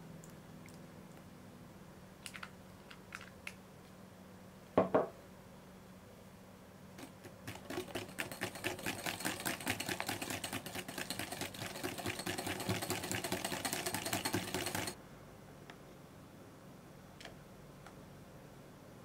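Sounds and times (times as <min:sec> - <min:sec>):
whisk clattering in glass bowl: 0:07.0 - 0:15.0.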